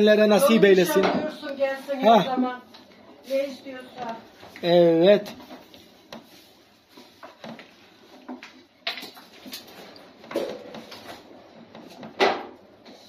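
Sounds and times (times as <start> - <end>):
rolling pin on wooden board: 5.3 - 8.6, 10.2 - 13.0.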